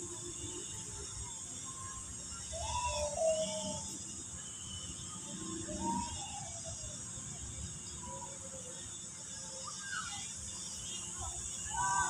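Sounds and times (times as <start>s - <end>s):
insects droning: 0.0s - 12.0s
wavering pitched call: 2.4s - 4.0s.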